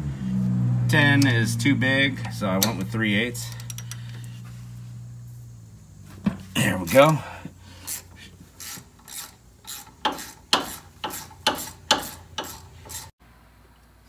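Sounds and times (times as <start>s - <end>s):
ratchet clicking: 2.2s - 4.4s, 7.8s - 13.1s.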